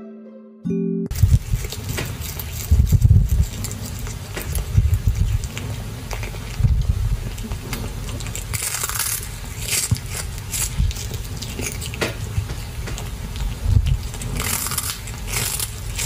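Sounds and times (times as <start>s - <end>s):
kitten crunching fish: 1.1s - 16.0s.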